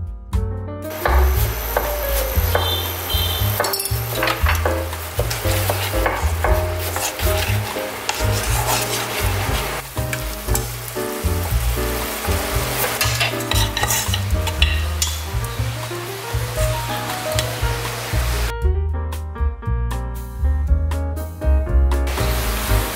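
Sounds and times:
background music: 0.0 - 22.9
clams sizzling in a frying pan: 0.9 - 18.5, 22.1 - 22.9
chopsticks clicking and scraping pan: 3.5 - 15.4.

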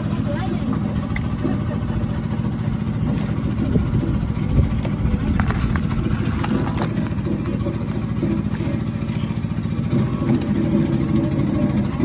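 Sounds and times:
engine idling: 0.0 - 12.0
fish knocking and slapping: 3.1 - 9.4.

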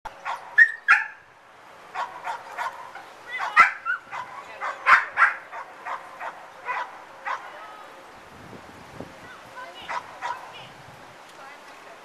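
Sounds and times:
dog barking and yipping: 0.2 - 1.2, 2.0 - 7.5, 9.9 - 10.5.

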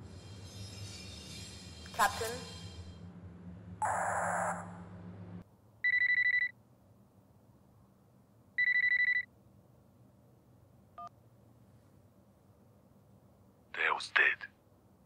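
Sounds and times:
mobile phone ringing: 5.8 - 6.5, 8.6 - 9.3.

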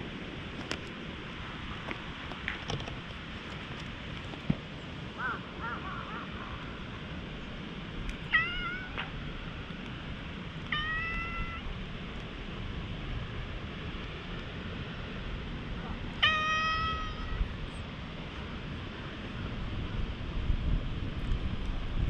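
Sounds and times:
cat meowing: 8.3 - 9.1, 10.7 - 11.7, 16.2 - 17.5.

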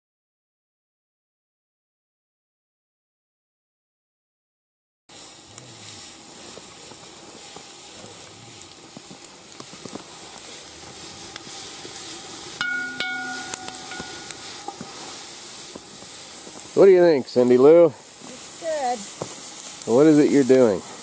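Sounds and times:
fire pops: 5.1 - 21.0
wood fire crackling and hissing: 5.1 - 21.0
short ringing tone: 12.6 - 14.8.

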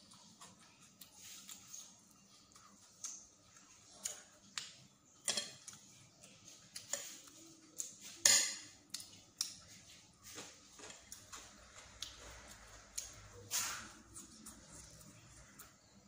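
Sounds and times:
chewing: 8.9 - 16.0.

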